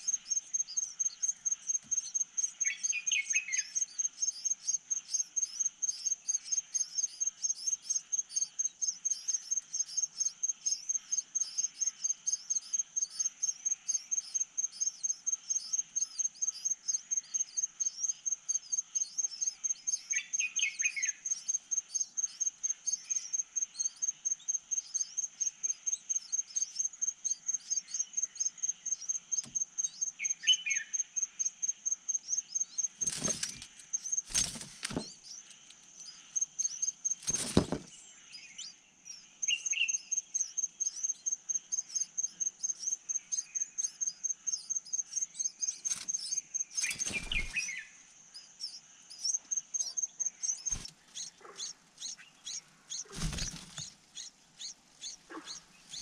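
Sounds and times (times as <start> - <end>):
insect chirping: 0.0 - 56.0
short bird calls: 50.6 - 56.0.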